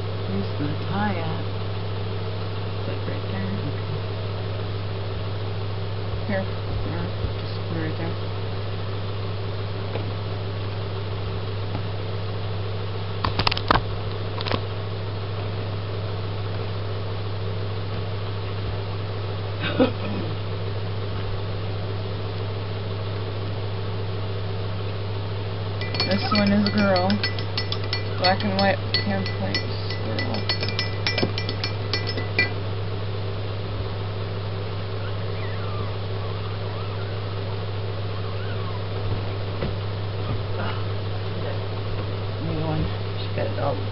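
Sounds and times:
low mechanical hum: 0.0 - 43.9
low hum: 25.6 - 42.5
sharp clinks: 25.8 - 32.6
puppy squeaking: 26.0 - 26.8, 35.0 - 37.3, 38.1 - 38.9.

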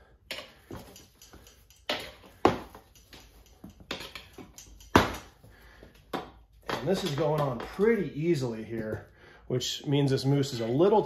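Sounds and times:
tire spoons clicking against rim: 0.3 - 6.1.

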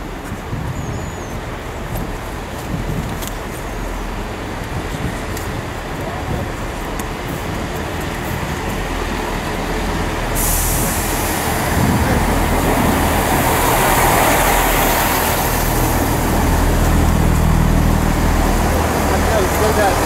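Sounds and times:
diesel train engine drone: 0.0 - 20.0
train wheels on rails: 0.0 - 20.0
hiss: 10.3 - 12.1.

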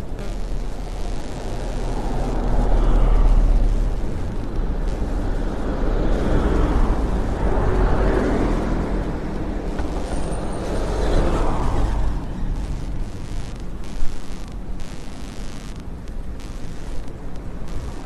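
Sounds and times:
vehicles passing: 0.0 - 13.8
truck passing: 2.0 - 13.5.

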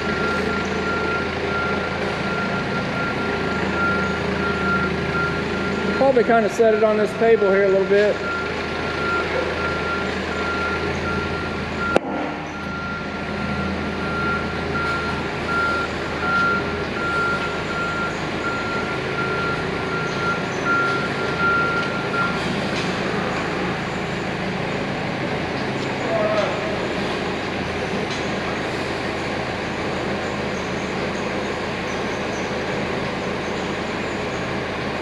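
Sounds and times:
forklift engine running: 0.0 - 35.0
warning alarm beeping: 0.2 - 22.4.

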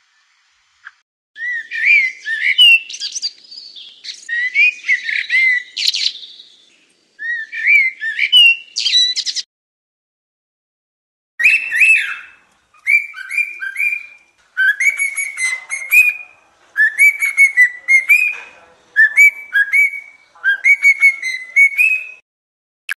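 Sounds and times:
cockatiel whistling: 11.4 - 18.4, 19.0 - 22.2.

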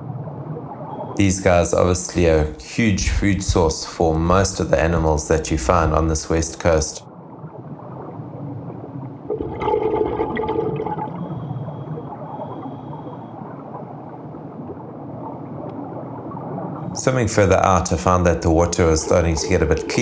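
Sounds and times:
underwater water rush: 7.8 - 13.0
diver exhaling bubbles: 9.3 - 11.3.

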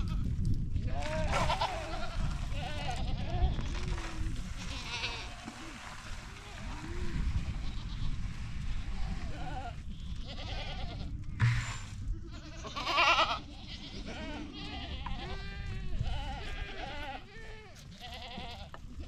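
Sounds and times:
goats bleating: 0.9 - 8.2, 9.0 - 11.2, 12.2 - 19.0
sharp knock: 11.4 - 12.0.

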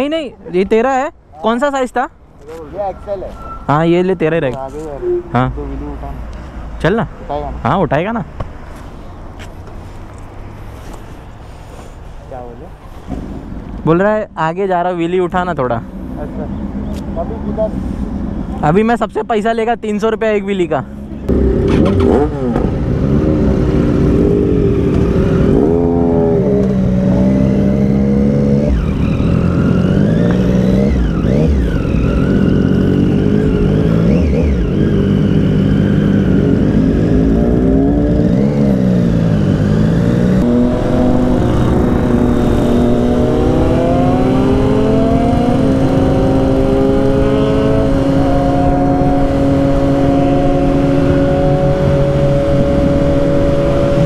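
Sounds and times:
motorcycle engine accelerating: 21.3 - 54.0
wind rush: 39.1 - 54.0.

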